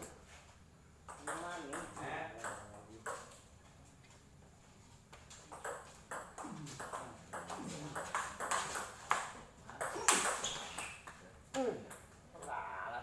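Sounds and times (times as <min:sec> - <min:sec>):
ball hitting table tennis paddles: 0:01.0 - 0:03.5, 0:05.1 - 0:11.2
ball bouncing on table: 0:01.1 - 0:03.4, 0:05.5 - 0:11.2.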